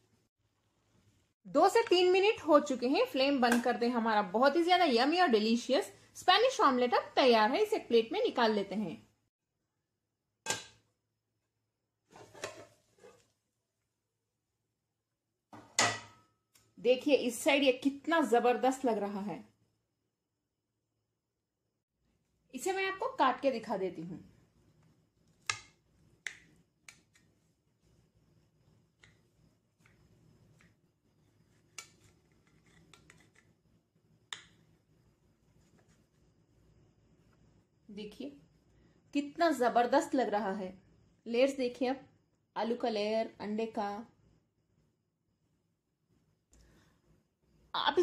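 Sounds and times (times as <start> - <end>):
plate set down on counter: 12.2 - 13.2, 15.5 - 16.2.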